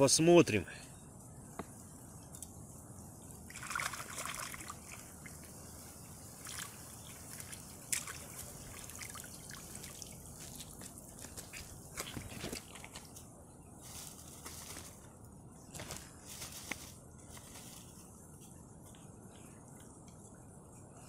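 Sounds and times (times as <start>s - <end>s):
water trickling and dripping: 3.4s - 13.1s
water pouring and splashing: 3.5s - 13.1s.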